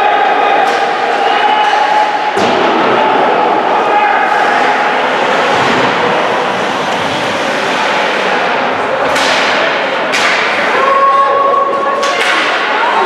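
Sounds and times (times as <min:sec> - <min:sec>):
echoing game noise in indoor hall: 0:00.0 - 0:13.0
sharp crack: 0:09.0 - 0:10.8.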